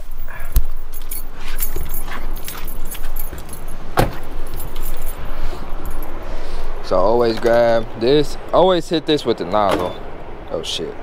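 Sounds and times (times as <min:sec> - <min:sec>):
metallic jangling and clicking: 0:00.0 - 0:06.2
sharp knocks: 0:04.0 - 0:04.3.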